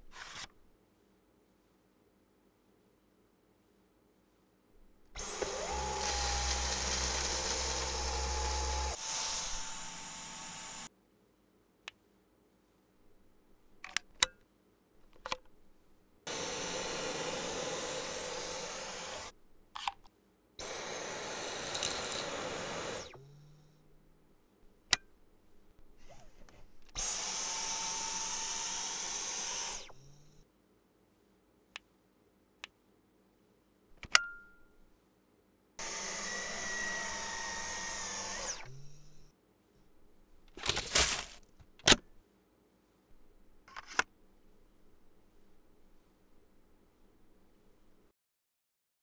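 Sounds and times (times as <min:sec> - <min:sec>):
vacuum cleaner motor whine: 0:05.2 - 0:10.9, 0:16.3 - 0:19.3, 0:20.6 - 0:23.4, 0:27.0 - 0:30.3, 0:35.8 - 0:39.2.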